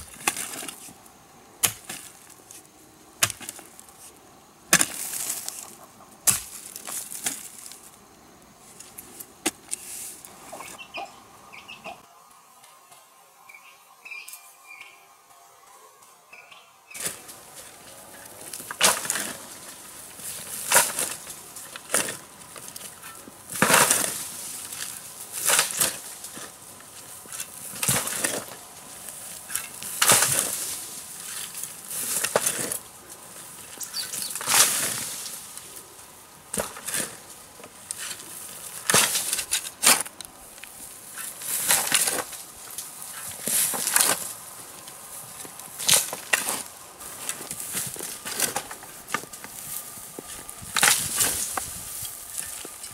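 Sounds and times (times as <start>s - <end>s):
digging tool scraping soil: 16.9s - 32.8s, 33.6s - 35.5s, 36.5s - 40.3s, 41.0s - 44.4s, 45.3s - 52.9s.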